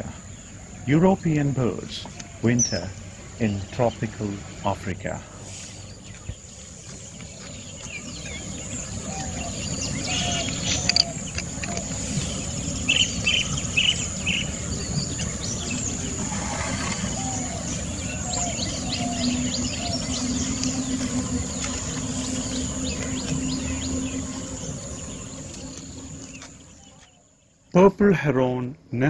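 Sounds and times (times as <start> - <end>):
low drone: 0.0 - 27.1
small birds chirping: 0.0 - 29.0
steady hiss: 0.8 - 6.0, 9.4 - 26.1.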